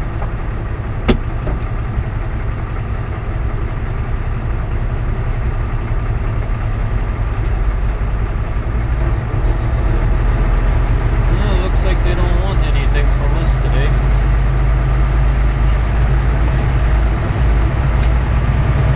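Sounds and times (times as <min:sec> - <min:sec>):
truck diesel engine rumbling: 0:00.0 - 0:18.9.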